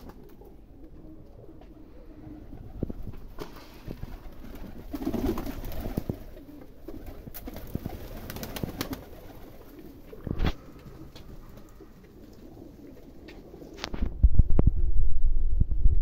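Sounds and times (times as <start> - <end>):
pigeon wings clapping and flapping: 0.0 - 0.5, 2.7 - 12.5
pigeons cooing: 0.0 - 13.9.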